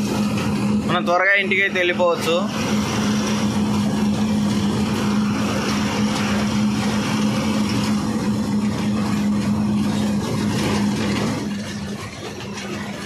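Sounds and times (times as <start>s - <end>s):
road noise: 0.0s - 13.0s
truck diesel engine droning: 0.0s - 13.0s.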